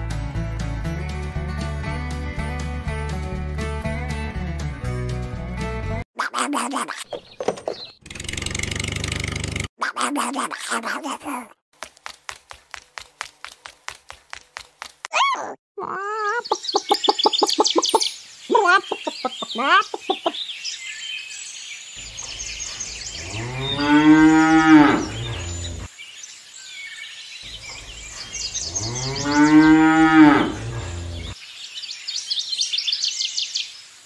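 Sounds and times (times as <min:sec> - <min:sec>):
birds chirping: 0:06.8 - 0:08.6, 0:15.2 - 0:33.8
cow mooing: 0:23.2 - 0:25.9, 0:28.6 - 0:31.3.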